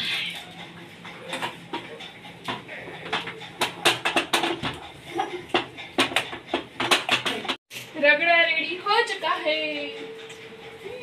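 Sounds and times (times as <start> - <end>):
potato masher clanking on metal pot: 1.0 - 7.6.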